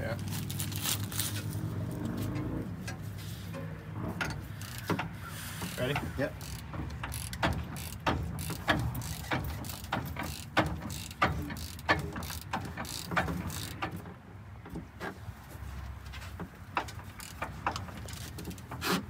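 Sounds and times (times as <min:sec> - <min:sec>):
hand ratchet clicking: 0:04.2 - 0:14.0, 0:16.8 - 0:19.0.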